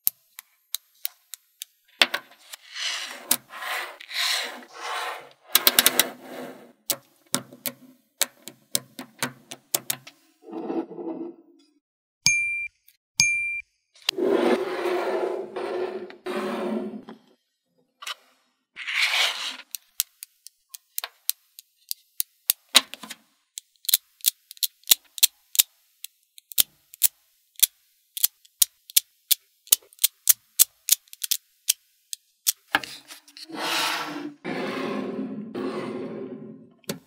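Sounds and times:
short scrape: 2.6s - 6.7s, 14.1s - 17.0s, 33.4s - 36.6s
magnetic balls clicking: 23.6s - 32.6s.

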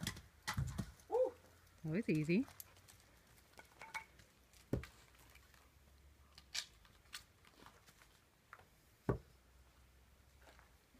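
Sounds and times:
firewood knocking: 0.0s - 1.1s.

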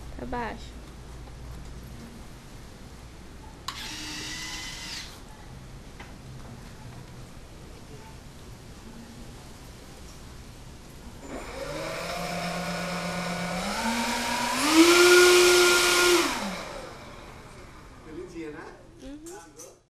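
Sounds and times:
model airplane motors whining: 3.7s - 5.1s, 11.2s - 17.6s.

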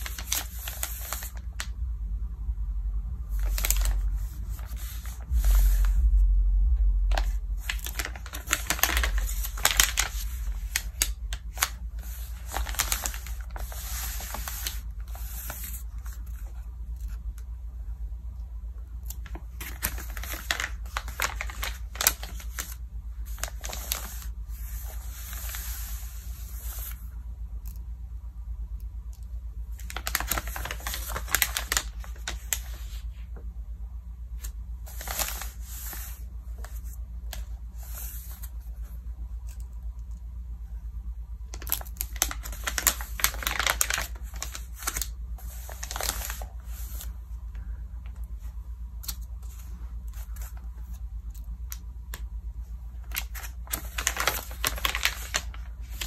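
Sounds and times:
magazine pages crinkling: 0.0s - 1.7s, 3.3s - 6.0s, 7.1s - 17.2s, 19.1s - 27.0s, 29.7s - 33.1s, 34.4s - 38.8s, 41.5s - 47.2s, 53.0s - 56.0s.

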